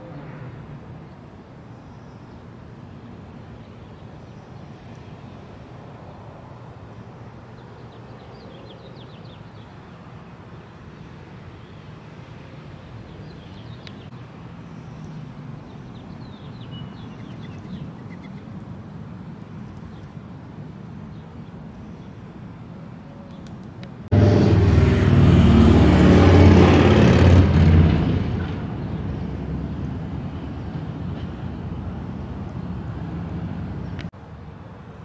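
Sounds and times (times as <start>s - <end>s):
distant traffic rumble: 0.0s - 35.0s
small birds chirping: 6.9s - 18.7s, 19.5s - 20.3s, 23.2s - 23.7s.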